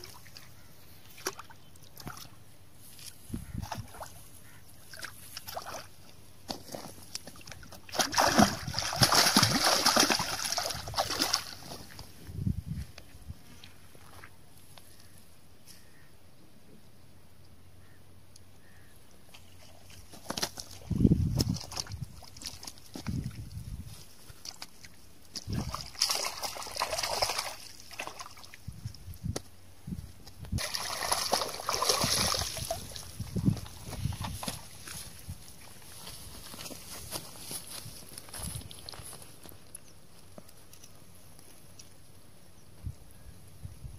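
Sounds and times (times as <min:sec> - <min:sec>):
fish thrashing and splashing: 0:06.5 - 0:11.6, 0:25.4 - 0:28.6, 0:30.6 - 0:35.0.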